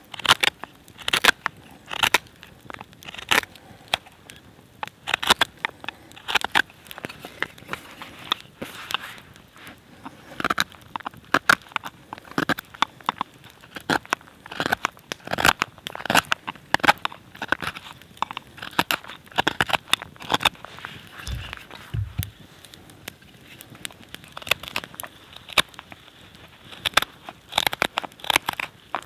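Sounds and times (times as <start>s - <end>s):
knife carving wood: 0.1s - 9.2s, 10.0s - 22.4s, 24.2s - 25.8s, 26.7s - 29.0s.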